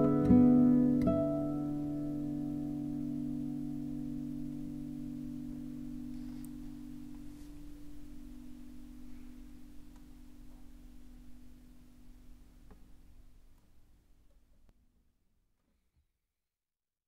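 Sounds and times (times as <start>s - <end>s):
held low music chord: 0.0s - 12.6s.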